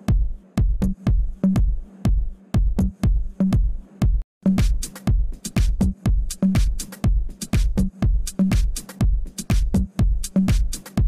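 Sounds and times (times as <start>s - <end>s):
hi-hats: 0.0s - 11.0s
kick-drum beat: 0.0s - 11.0s
electronic dance music: 4.5s - 11.0s.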